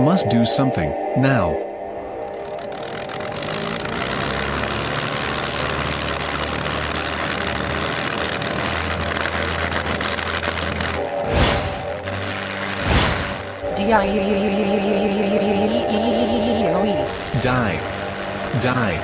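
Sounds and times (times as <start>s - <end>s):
aircraft engine roar: 1.2s - 19.0s
loud whoosh: 10.1s - 13.9s.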